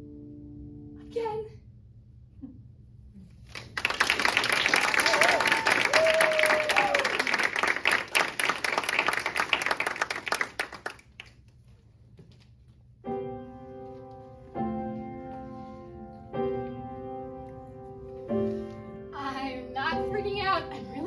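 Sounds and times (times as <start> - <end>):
grand piano chords: 0.0 - 2.0, 12.9 - 21.0
audience applause: 3.5 - 11.3.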